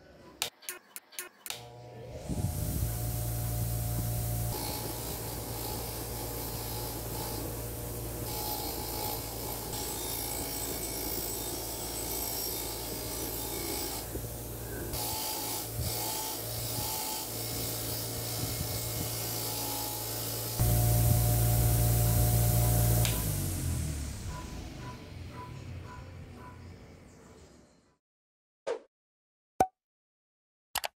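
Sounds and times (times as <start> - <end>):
grinder motor hum: 1.5 - 25.2
wire wheel rasping on steel: 2.9 - 23.2.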